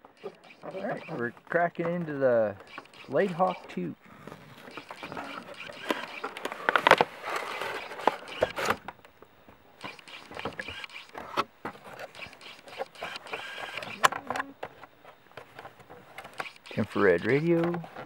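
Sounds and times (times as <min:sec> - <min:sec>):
cardboard box rustling and scraping: 0:04.2 - 0:08.8.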